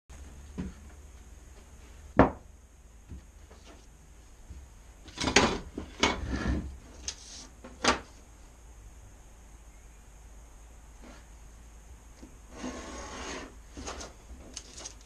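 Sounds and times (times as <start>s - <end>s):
objects knocking on wooden workbench: 2.2s - 2.5s
paper rustling: 13.8s - 15.0s.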